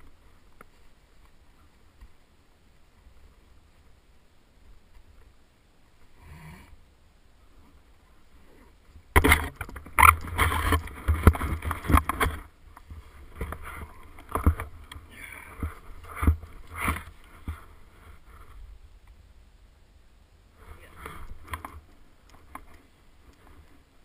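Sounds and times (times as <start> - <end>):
snow crunching and scraping: 7.4 - 18.7
rough scrapes and knocks: 8.5 - 18.7, 20.6 - 23.9.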